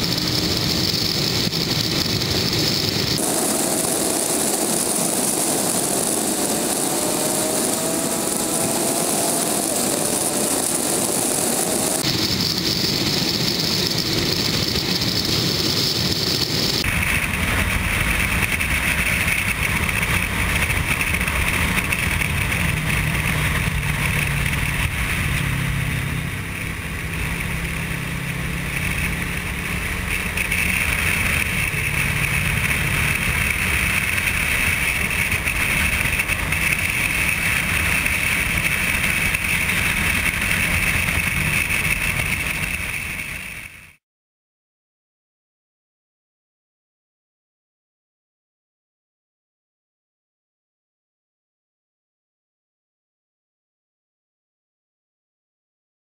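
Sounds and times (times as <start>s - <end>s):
wind rush over microphone: 0.0s - 43.8s
motorcycle engine drone: 0.0s - 44.0s.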